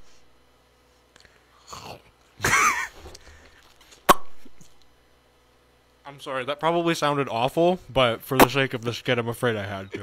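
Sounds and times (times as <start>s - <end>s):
lip-smack pop: 4.0s - 4.6s.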